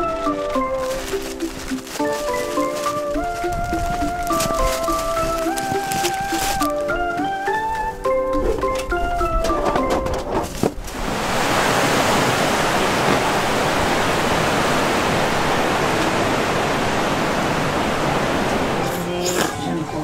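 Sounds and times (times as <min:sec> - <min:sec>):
steady loud rushing noise: 0:10.8 - 0:19.2.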